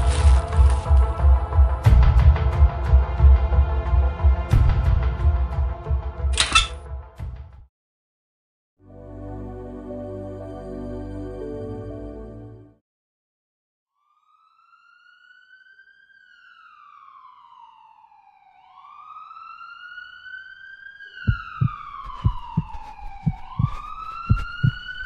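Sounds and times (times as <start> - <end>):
siren wailing: 14.0 - 25.0
heavy thumps: 21.3 - 24.8.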